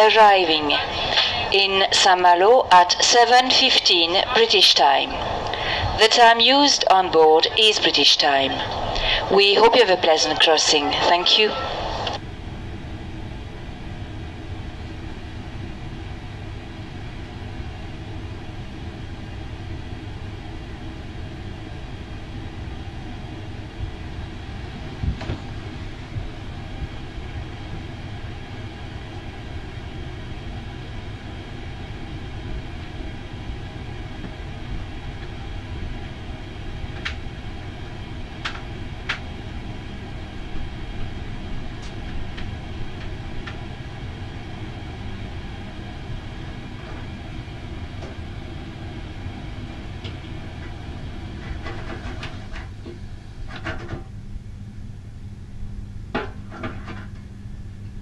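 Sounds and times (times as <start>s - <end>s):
ferry engines rumbling: 0.0s - 12.2s.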